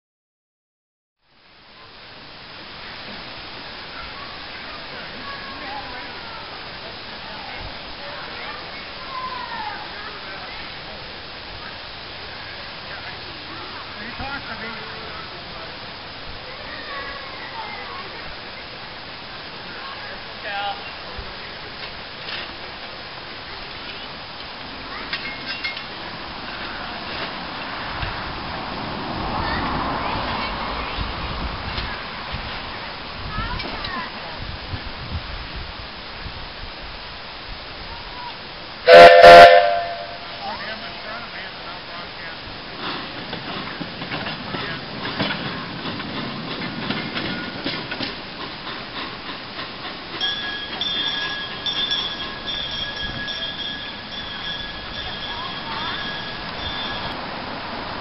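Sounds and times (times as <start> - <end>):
steady hiss: 1.2 - 58.0
wheels squealing on rails: 2.6 - 34.1, 38.0 - 58.0
wheels clicking and knocking: 19.6 - 32.8, 42.4 - 58.0
sharp metallic clinks: 50.1 - 57.2.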